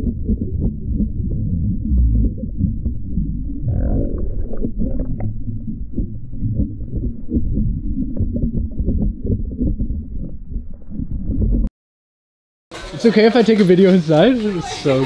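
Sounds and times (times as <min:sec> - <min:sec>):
underwater water rumble: 0:00.0 - 0:11.7.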